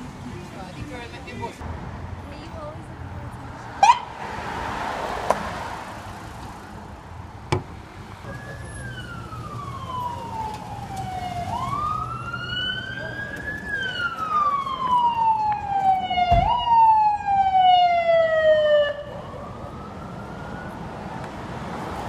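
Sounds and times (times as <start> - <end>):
street traffic hum: 0.0 - 22.0
police siren wailing: 8.2 - 21.6
sharp rising siren chirp: 8.3 - 20.9.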